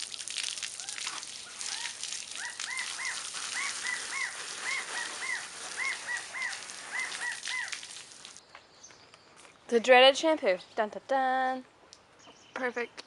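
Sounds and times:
water splashing: 0:00.0 - 0:08.4
high chirping calls: 0:00.8 - 0:09.6.

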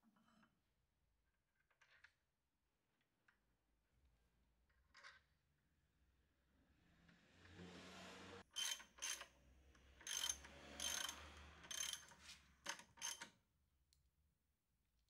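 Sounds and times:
socket ratchet clicking: 0:10.0 - 0:12.1, 0:12.7 - 0:13.3.

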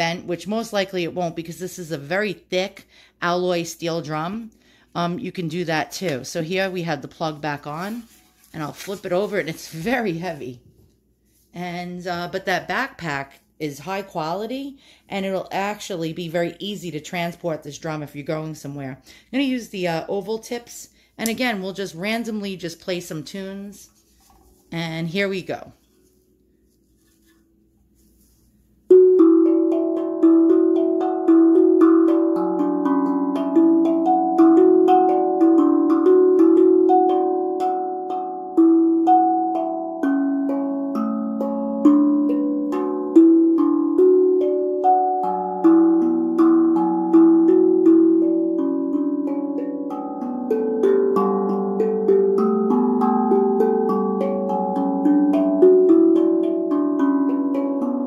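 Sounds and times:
tongue drum melody: 0:28.9 - 0:58.0.

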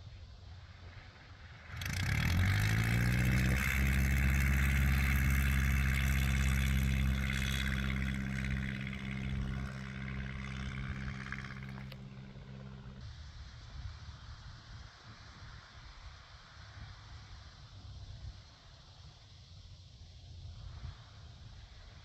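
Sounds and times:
light aircraft engine and propeller: 0:00.0 - 0:15.8.

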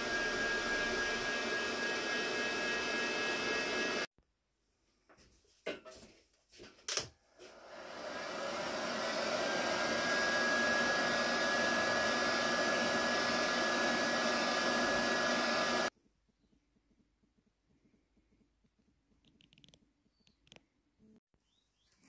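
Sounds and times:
electric blower motor whining: 0:00.0 - 0:04.1, 0:07.5 - 0:15.9.

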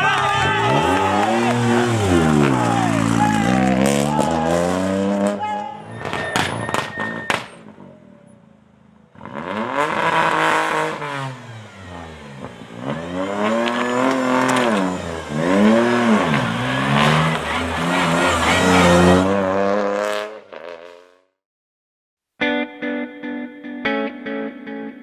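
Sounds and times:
rally car engine revving: 0:00.2 - 0:07.8, 0:09.1 - 0:21.0.

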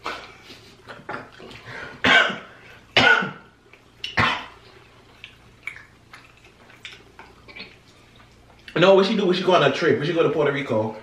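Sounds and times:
person coughing: 0:02.0 - 0:03.5.

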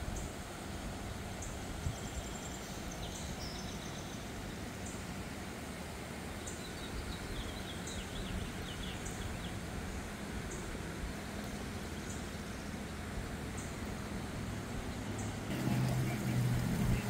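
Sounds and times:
river rushing: 0:00.0 - 0:17.0
bird warbling song: 0:01.4 - 0:05.0, 0:06.4 - 0:10.7.

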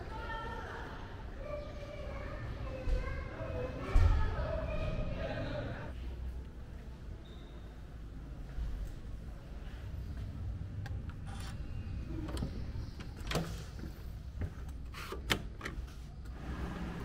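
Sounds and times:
low rumble of walking and handling: 0:08.0 - 0:14.9.

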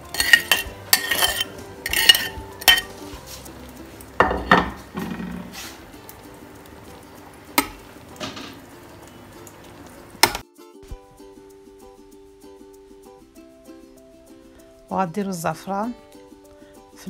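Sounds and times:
metal spoon scraping bowl: 0:00.0 - 0:03.2
spoon knocking on pot: 0:00.1 - 0:02.9, 0:04.2 - 0:05.6, 0:07.6 - 0:08.7.

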